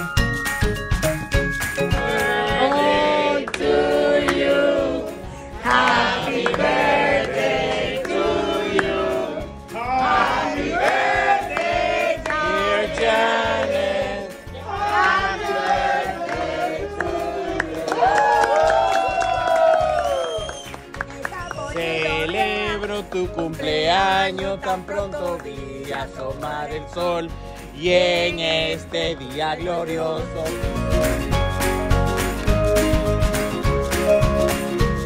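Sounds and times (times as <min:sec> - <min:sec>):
people singing together: 0:01.8 - 0:18.1, 0:21.8 - 0:29.2.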